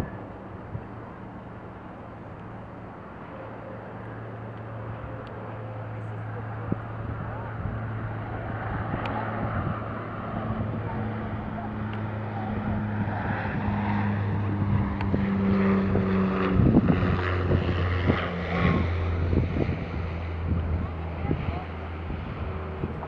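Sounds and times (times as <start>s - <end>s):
turboprop plane droning: 0.0s - 23.0s
wind buffeting microphone: 6.2s - 23.0s.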